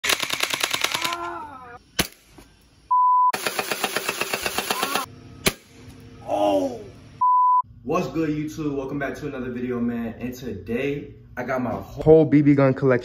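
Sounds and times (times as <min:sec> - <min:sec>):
censor bleep: 0:02.9 - 0:03.3, 0:07.2 - 0:07.7
full-auto bb gun fire: 0:03.4 - 0:05.8.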